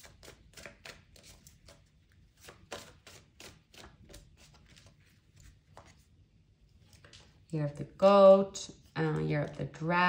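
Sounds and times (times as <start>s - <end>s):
cards being shuffled: 0.0s - 6.1s.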